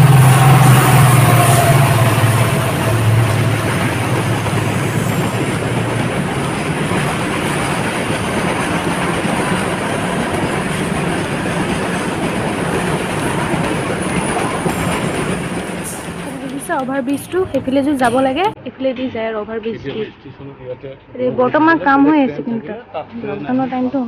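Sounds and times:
low drone: 0.0s - 18.6s
steel wheels on rail: 0.0s - 18.6s.

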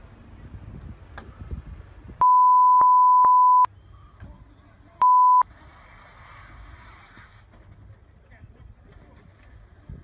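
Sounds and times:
steady bleep tone: 2.2s - 3.7s, 5.0s - 5.4s.

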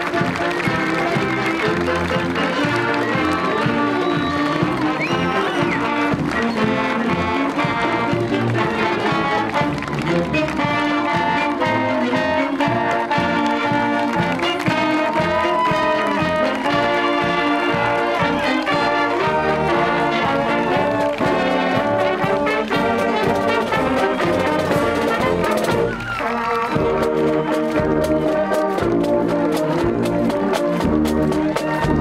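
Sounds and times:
brass horns playing tune: 0.0s - 32.0s
drumline: 0.0s - 32.0s.

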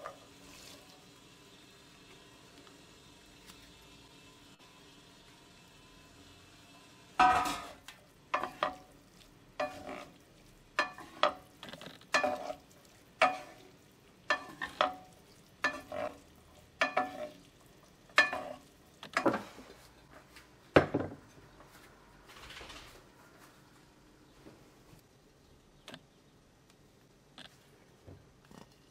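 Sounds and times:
wooden spoons knocking on pan: 10.8s - 11.4s, 12.1s - 12.5s, 14.3s - 15.0s, 16.8s - 17.3s, 18.2s - 18.6s.

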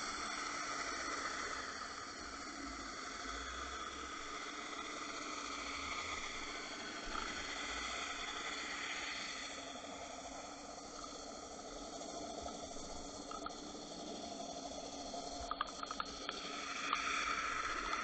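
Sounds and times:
faint hum tones: 0.0s - 18.0s
underwater hiss: 0.0s - 18.0s.

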